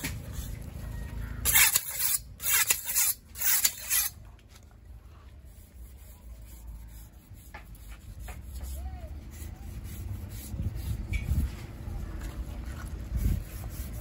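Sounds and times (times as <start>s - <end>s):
low background rumble: 0.0s - 14.0s
knife rasping through fish skin: 1.5s - 4.2s.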